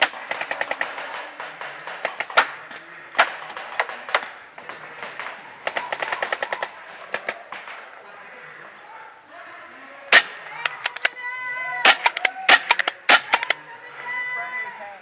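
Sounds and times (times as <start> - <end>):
paintball markers firing: 0.0 - 7.8, 10.1 - 11.2, 11.8 - 13.6.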